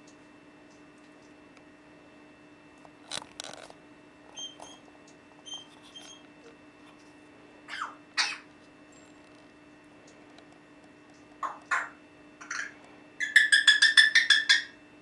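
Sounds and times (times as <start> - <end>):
parrot squawking: 7.7 - 8.5, 11.4 - 14.8
parrot whistling: 7.7 - 8.5, 11.4 - 14.8.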